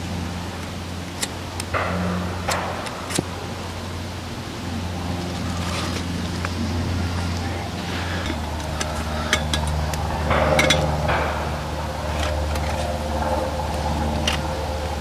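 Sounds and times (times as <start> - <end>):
steady low hum: 0.0 - 15.0
metal pot clinks and taps: 8.2 - 11.0.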